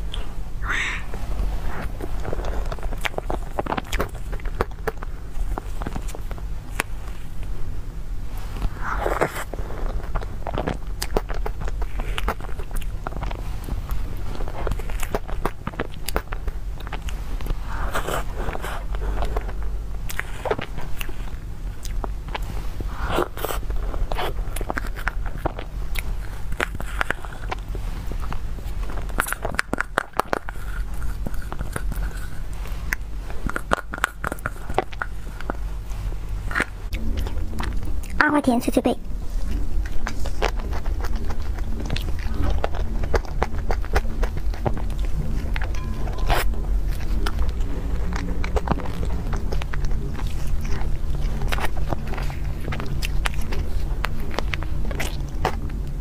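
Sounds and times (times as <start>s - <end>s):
breathy rush of eating: 0.0s - 7.4s, 8.3s - 29.6s
chewing mouth sounds: 0.0s - 7.5s, 8.5s - 38.2s, 39.2s - 56.0s
steady low hum: 0.0s - 56.0s.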